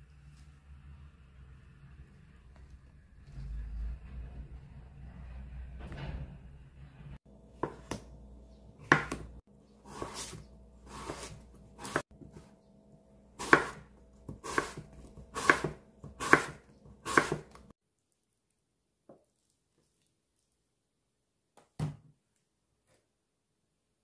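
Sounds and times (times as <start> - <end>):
knife knocking on cutting board: 8.8 - 9.3
soft knife cutting strokes: 8.9 - 12.5, 13.4 - 17.6.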